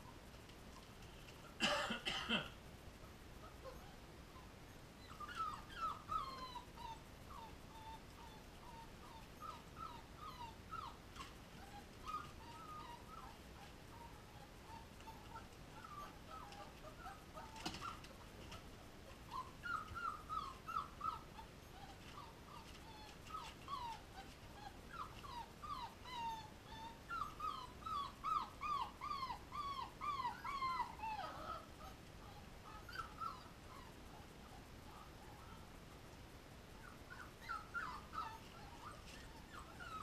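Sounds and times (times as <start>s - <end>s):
puppies whimpering and squeaking: 3.4s - 35.6s, 36.8s - 40.0s.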